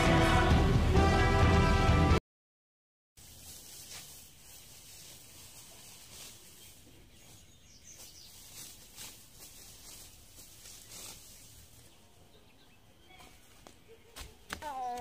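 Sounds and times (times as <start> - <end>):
rustling of weeds pulled: 3.2 - 12.0.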